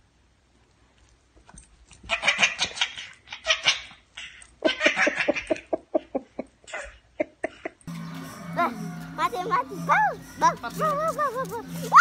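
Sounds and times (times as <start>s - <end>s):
person laughing: 4.6s - 7.9s.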